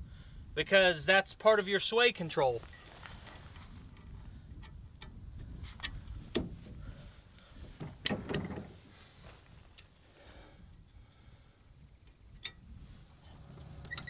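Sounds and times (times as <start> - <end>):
metal hitch clicks and clanks: 7.8 - 8.8, 13.2 - 14.0.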